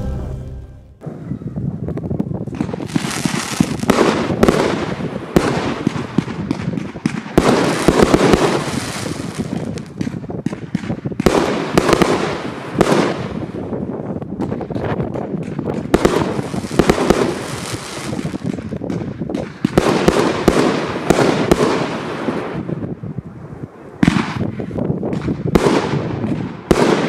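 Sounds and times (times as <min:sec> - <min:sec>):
fireworks bangs and bursts: 0:02.1 - 0:27.0
fireworks crackling: 0:02.5 - 0:22.8.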